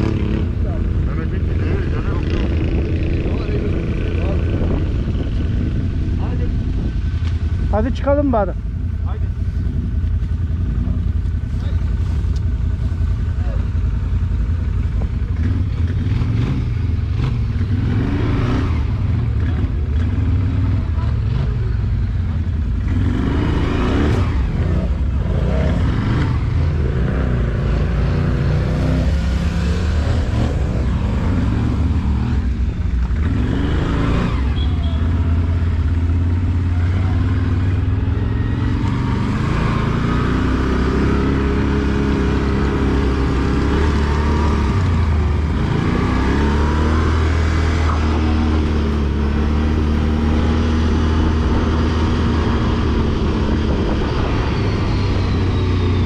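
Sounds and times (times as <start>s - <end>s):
atv engine revving: 0.0s - 9.9s, 10.6s - 56.0s.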